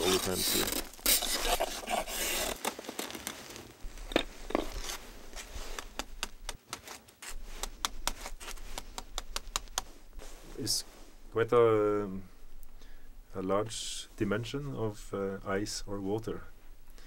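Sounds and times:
rasping scrape on ice: 0.0s - 2.6s
ice clicking and crackling: 0.0s - 9.8s.

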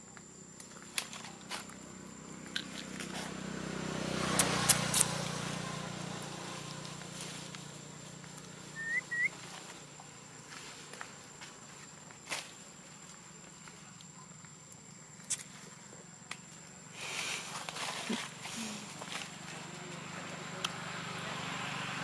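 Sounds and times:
short rising chirps: 8.8s - 9.4s.

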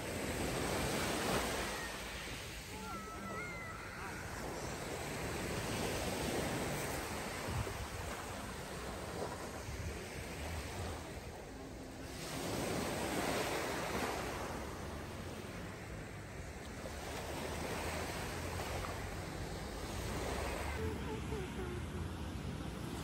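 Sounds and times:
waves washing over pebble beach: 0.0s - 15.6s
wind rumble on microphone: 4.2s - 20.8s.

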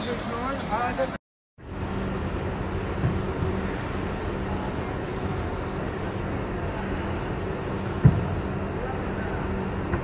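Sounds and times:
air compressor hum: 1.6s - 8.6s
spray gun hissing: 2.5s - 8.5s.

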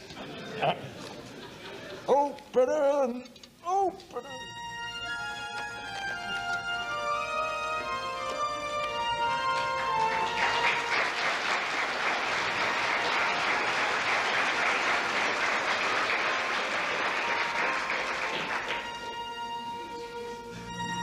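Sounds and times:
music: 2.8s - 21.0s
audience applauding: 8.8s - 19.2s.

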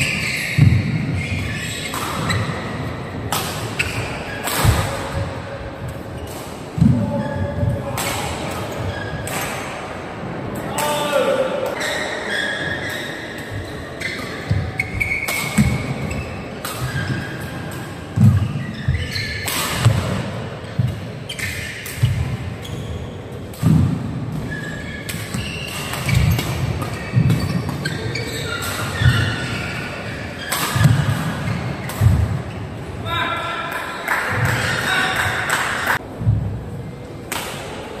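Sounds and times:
racket hitting shuttlecock: 0.0s - 5.3s, 14.1s - 22.4s, 23.5s - 32.5s.

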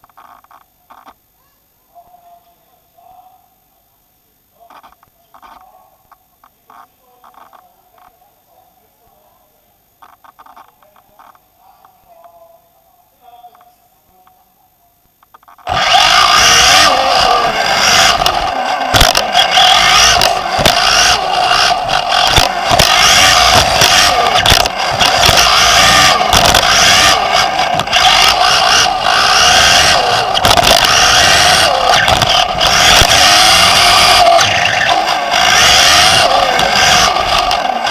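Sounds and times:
drive and tyre noise: 15.6s - 37.9s
electric motor whine: 15.7s - 37.9s.

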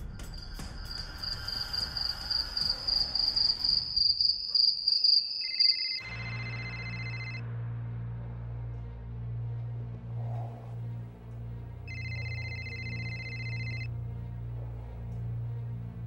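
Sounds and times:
crickets chirping: 0.1s - 7.3s
high ringing tones: 5.2s - 7.4s, 11.9s - 13.9s
steady low hum: 6.1s - 16.0s.

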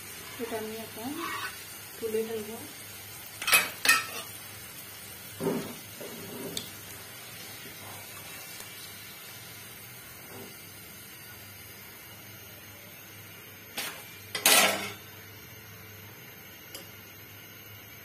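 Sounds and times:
faint oil sizzle: 0.0s - 18.0s
spatula and tongs scraping a pan: 0.2s - 1.8s, 3.4s - 4.4s.

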